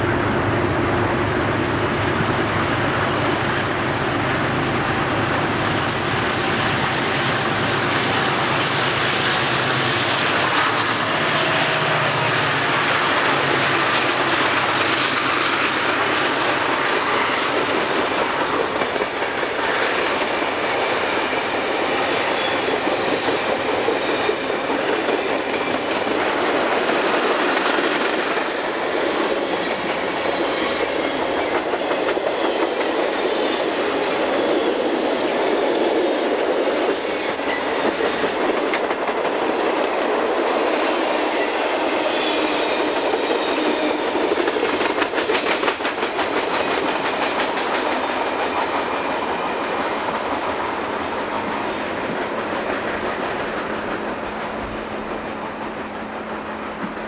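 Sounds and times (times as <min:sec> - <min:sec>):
freight train cars rolling: 0:00.0 - 0:57.0
quick clicks from train wheels: 0:08.3 - 0:57.0.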